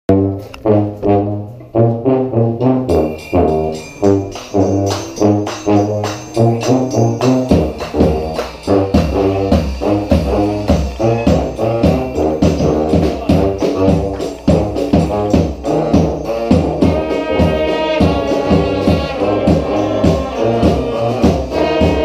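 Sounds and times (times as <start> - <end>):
brass band playing: 0.1 - 22.0
percussion: 2.6 - 22.0.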